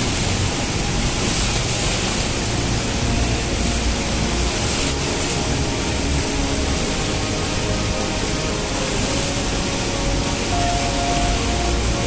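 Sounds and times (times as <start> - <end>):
waterfall rushing over rock: 0.0 - 12.0.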